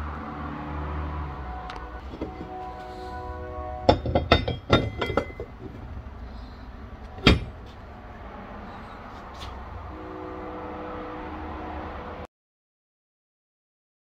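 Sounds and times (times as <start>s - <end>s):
steady low hum: 0.0s - 12.3s
faint steady tone: 0.9s - 8.0s
metal clank: 2.1s - 2.6s, 3.9s - 5.8s, 7.0s - 7.8s.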